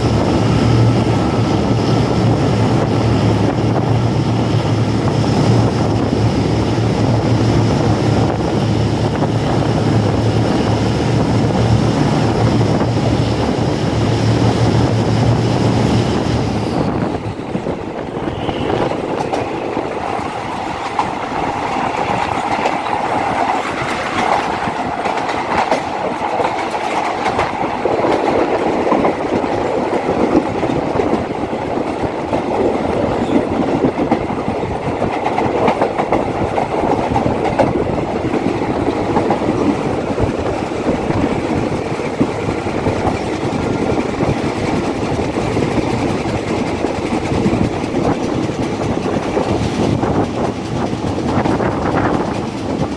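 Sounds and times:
train wheels clattering on rails: 0.0 - 52.9.

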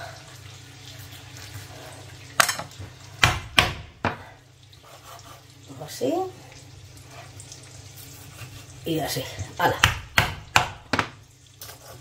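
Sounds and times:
knife chopping on cutting board: 3.2 - 4.2, 9.8 - 11.2.

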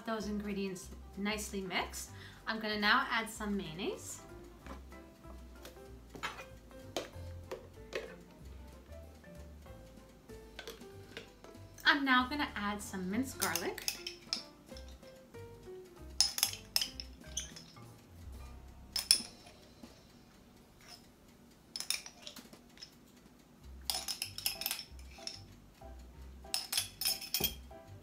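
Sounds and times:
metal spoon clinking on glass: 13.4 - 15.1, 16.2 - 17.8, 19.0 - 19.5, 21.8 - 22.9, 23.9 - 25.5, 26.5 - 27.7.

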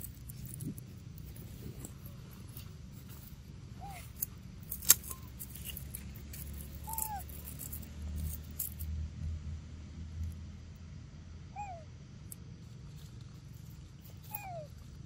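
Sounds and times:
dry leaves crackling and rustling: 0.0 - 8.7
short chirping calls: 6.8 - 7.4.

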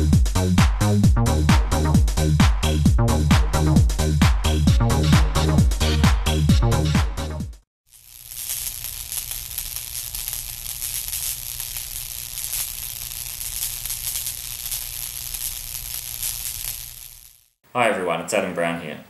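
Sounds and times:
electronic dance music: 1.3 - 7.4
electric crackling and buzzing: 7.9 - 17.6.

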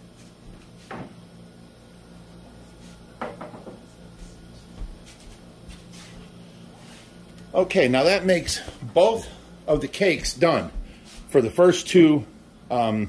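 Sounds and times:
low steady hum: 0.0 - 13.0
knocks and rattle on counter: 3.2 - 3.8.

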